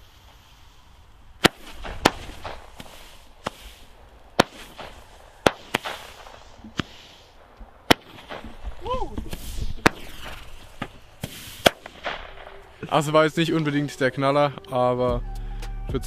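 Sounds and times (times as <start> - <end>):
firework hissing: 0.0 - 13.2
firework bangs: 1.4 - 12.8.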